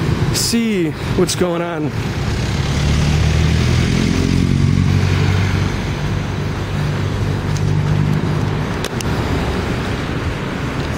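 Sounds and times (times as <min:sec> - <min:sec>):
traffic engines humming: 0:00.0 - 0:10.9
sharp clicks: 0:07.5 - 0:09.1.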